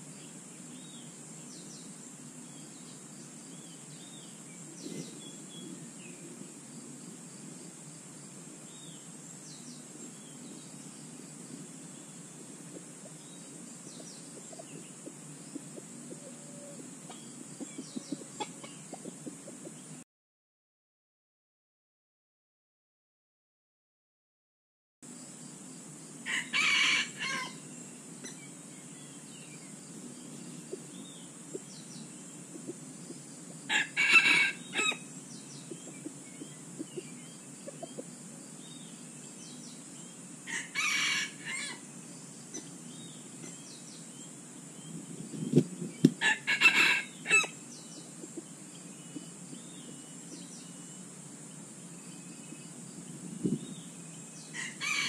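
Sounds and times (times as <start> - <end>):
roosters crowing: 26.2 - 27.7, 33.6 - 36.2, 40.4 - 42.0, 46.2 - 48.4, 54.4 - 55.0.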